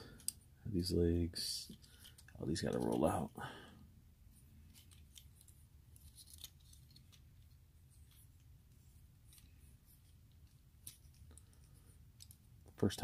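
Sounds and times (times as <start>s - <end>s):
low room hum: 0.0s - 13.0s
plastic toy parts clicking: 1.7s - 3.0s.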